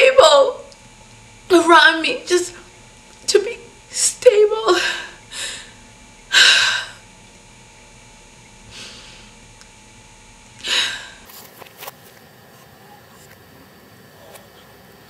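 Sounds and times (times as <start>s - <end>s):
woman crying: 4.5s - 5.6s
woman sniffing: 8.7s - 9.3s.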